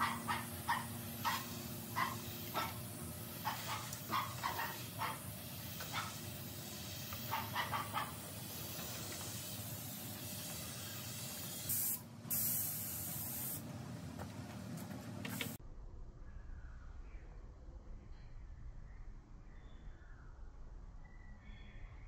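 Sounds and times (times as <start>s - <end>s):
dog barking: 0.0s - 2.8s, 3.4s - 5.3s, 5.9s - 6.2s, 7.3s - 8.2s
spray gun hissing: 0.0s - 13.6s
blasts of air: 8.4s - 13.6s.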